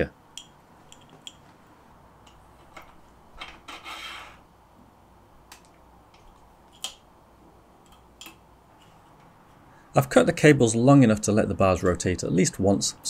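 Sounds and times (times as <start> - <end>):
brief rubbing scrape: 3.7 - 4.4.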